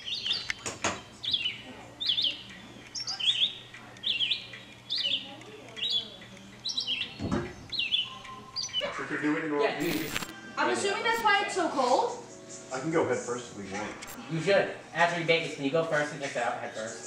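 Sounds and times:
songbird chirping: 0.0s - 9.0s.

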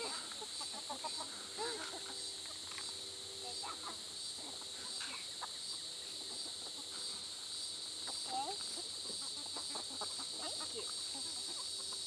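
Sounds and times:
crickets chirping: 0.0s - 12.0s
hens clucking softly: 8.0s - 12.0s.

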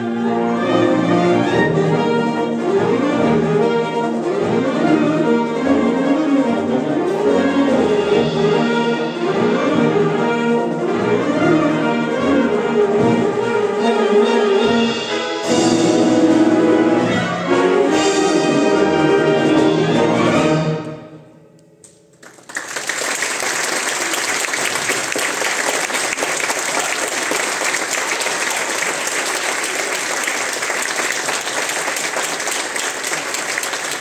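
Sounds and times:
audience applause: 22.2s - 34.0s.

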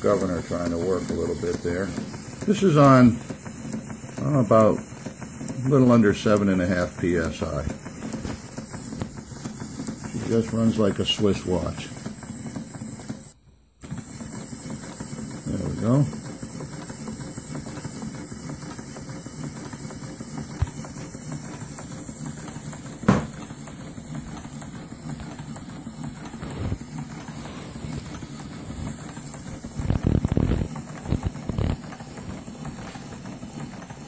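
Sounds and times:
soft steam hiss: 0.0s - 13.1s
model steam engine running: 0.0s - 34.0s
sharp knock: 23.1s - 23.3s.

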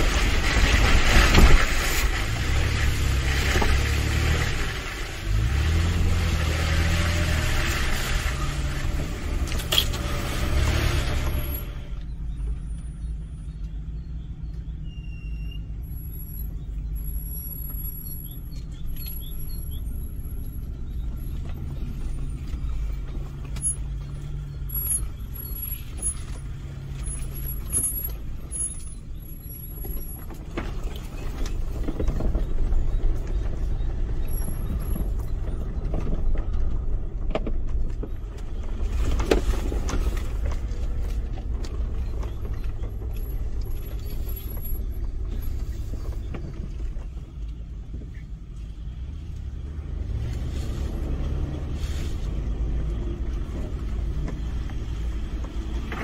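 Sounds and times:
car engine low drone: 0.0s - 56.0s
body and suspension rattles: 15.7s - 56.0s.

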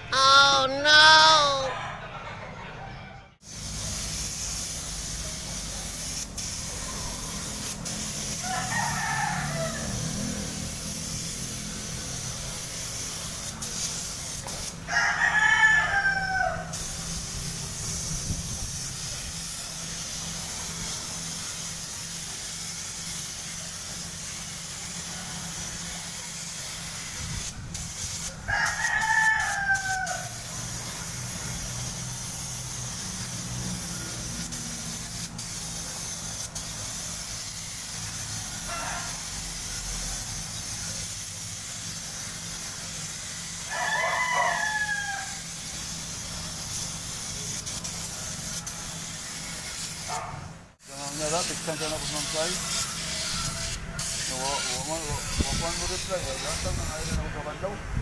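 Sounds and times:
rooster crowing: 1.4s - 3.4s, 8.3s - 10.6s, 14.8s - 16.9s, 28.4s - 30.9s, 38.3s - 39.4s, 43.6s - 45.4s, 52.4s - 54.8s
spray gun air hiss: 3.4s - 14.8s, 16.7s - 28.8s, 29.4s - 43.9s, 44.6s - 57.2s.

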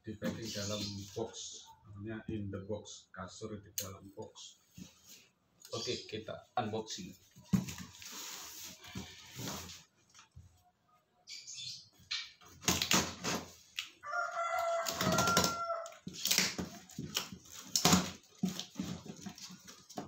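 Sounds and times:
rooster crowing: 14.0s - 16.1s.

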